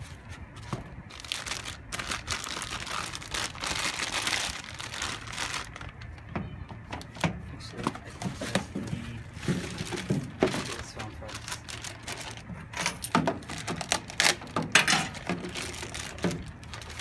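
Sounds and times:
plastic bag crinkling: 1.0s - 6.3s, 9.3s - 12.5s, 13.2s - 17.0s.

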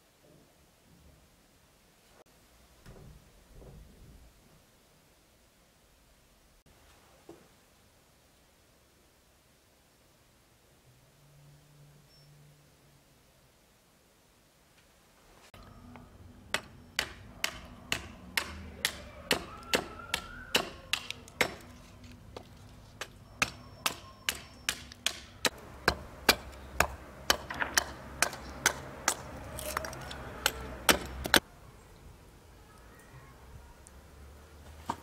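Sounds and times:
axe chopping kindling on wood: 16.6s - 21.8s, 23.4s - 31.4s.

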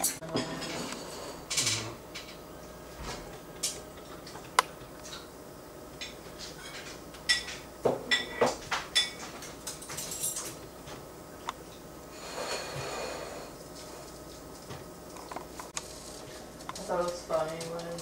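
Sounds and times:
dishes and cutlery clinking: 0.0s - 2.4s, 6.0s - 10.6s.

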